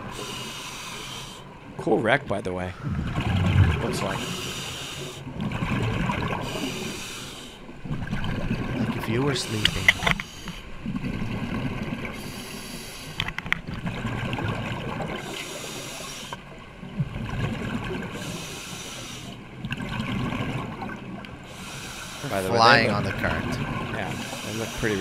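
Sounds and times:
diver breathing through regulator: 0.0 - 1.5, 2.7 - 5.3, 6.4 - 7.7, 9.3 - 10.8, 12.1 - 13.4, 15.2 - 16.4, 18.1 - 19.4, 21.4 - 22.4, 24.1 - 25.0
bubbling exhale: 2.7 - 7.6.

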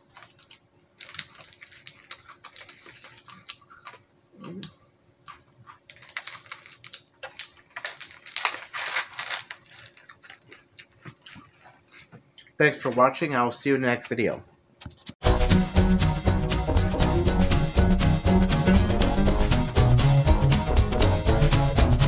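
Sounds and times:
foil wrapper crinkling: 0.0 - 4.1, 5.2 - 13.1.

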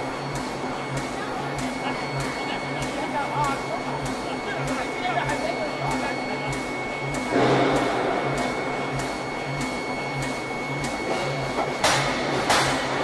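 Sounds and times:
machinery high whine: 0.0 - 13.0.

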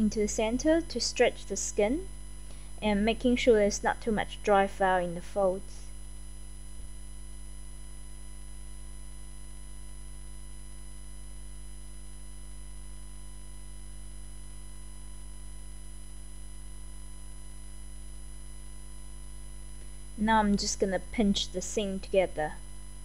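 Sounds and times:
steady electrical hum: 0.0 - 23.0.

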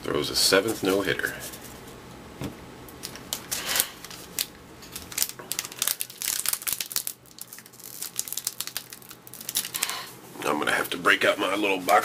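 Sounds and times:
foil wrapper crinkling: 3.0 - 10.1.

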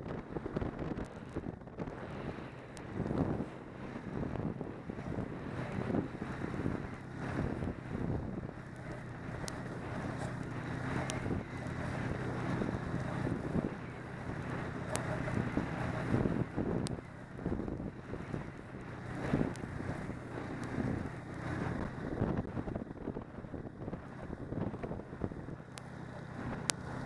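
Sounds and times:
snowmobile engine running: 0.0 - 27.0
wind buffeting microphone: 0.0 - 27.0.

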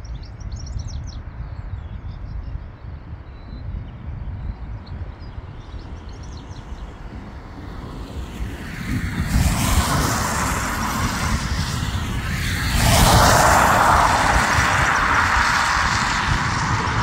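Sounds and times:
wind rumbling on microphone: 0.0 - 17.0
distant jet engines spooling up: 5.4 - 17.0
car tyres hissing on wet road: 8.0 - 17.0.

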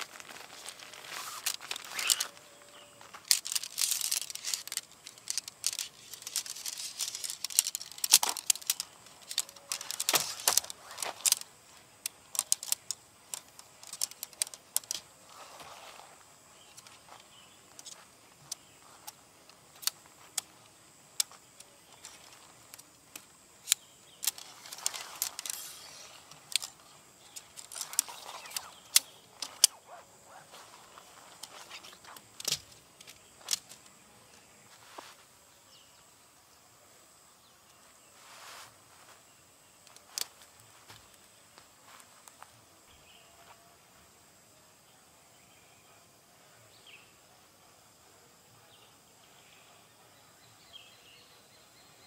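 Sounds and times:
handling rustles: 0.0 - 20.6, 21.2 - 34.0
tent poles clicking together: 0.0 - 34.0, 39.8 - 42.5.

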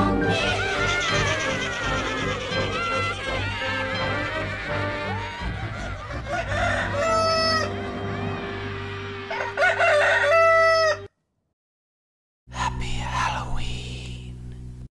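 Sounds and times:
rooster crowing: 2.8 - 11.1.

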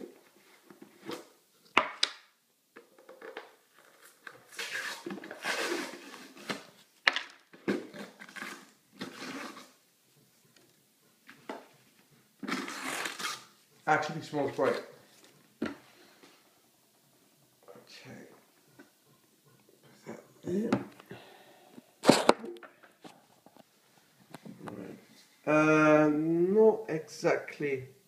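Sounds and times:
rustling and scraping: 2.8 - 17.3, 22.0 - 25.4.

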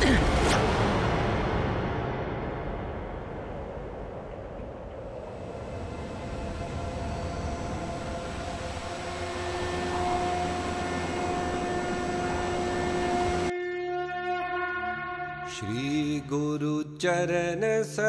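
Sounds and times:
soft sustained drone: 1.5 - 15.7
dramatic orchestral score: 5.3 - 16.2.

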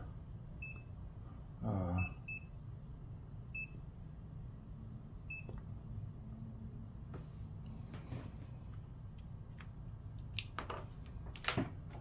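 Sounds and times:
murmured voice: 1.6 - 2.1.

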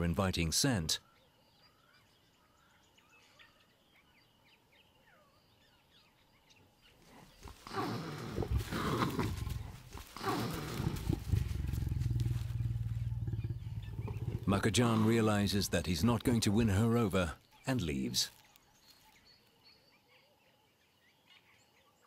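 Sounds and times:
faint bird chirps: 1.0 - 15.6, 16.9 - 22.0
leopard snarling: 7.0 - 16.0
leopard growling: 7.0 - 16.8.

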